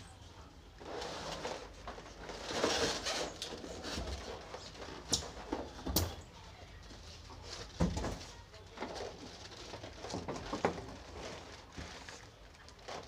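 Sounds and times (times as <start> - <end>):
foam scraping on plastic: 0.8 - 5.4.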